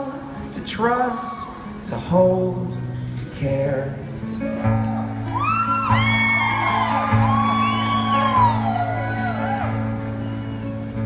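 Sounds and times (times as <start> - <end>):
acoustic guitar chords: 0.0 - 11.0
audience whooping and yelling: 1.0 - 1.8, 4.5 - 10.7.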